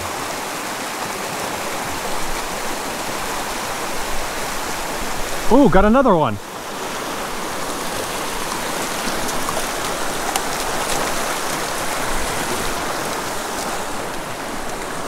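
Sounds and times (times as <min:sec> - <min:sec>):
creek rushing over rocks: 0:00.0 - 0:15.0
sharp water splashes: 0:06.7 - 0:15.0.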